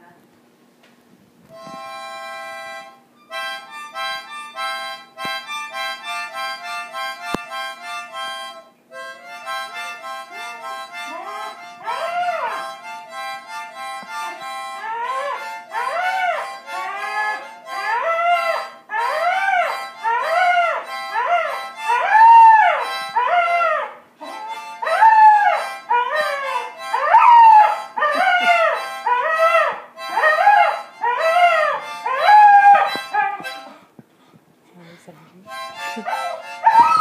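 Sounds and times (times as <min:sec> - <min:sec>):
harmonica: 0:01.5 - 0:37.0
dog howling: 0:11.2 - 0:12.7, 0:14.8 - 0:33.6, 0:36.0 - 0:37.0.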